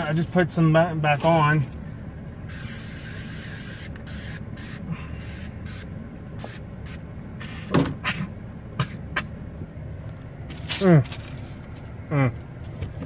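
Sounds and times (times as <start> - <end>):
low vehicle cabin hum: 0.0 - 13.0
aerosol spray hissing: 2.5 - 7.7.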